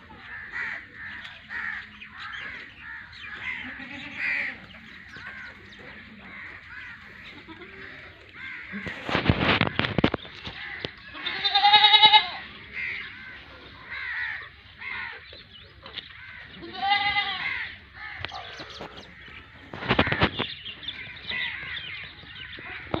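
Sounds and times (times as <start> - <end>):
goats bleating: 2.6 - 9.0, 11.1 - 12.5, 16.6 - 17.7
rustling noise: 6.3 - 11.0, 18.6 - 20.6.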